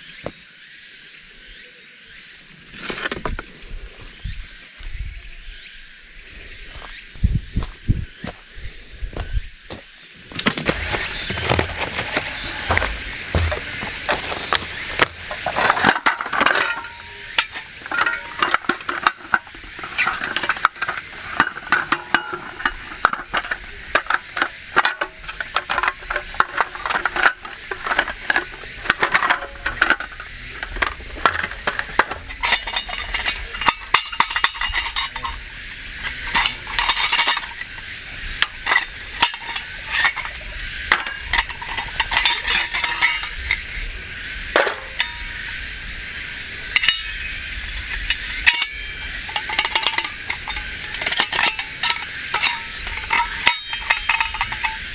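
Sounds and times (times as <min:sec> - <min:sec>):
metal camp table clattering: 0:02.7 - 0:03.6, 0:10.3 - 0:45.7, 0:46.6 - 0:54.9
stove parts clinking: 0:10.4 - 0:43.9, 0:44.6 - 0:45.6, 0:46.7 - 0:54.9.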